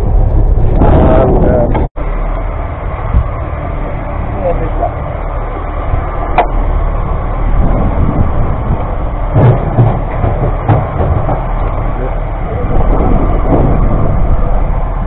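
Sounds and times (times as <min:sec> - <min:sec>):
boat motor rumble: 0:00.0 - 0:15.0
wind buffeting microphone: 0:00.0 - 0:15.0
knocks: 0:09.4 - 0:11.5.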